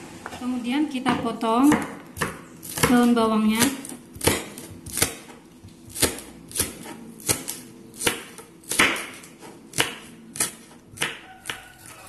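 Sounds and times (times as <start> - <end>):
knife chopping on wooden board: 1.6 - 12.0.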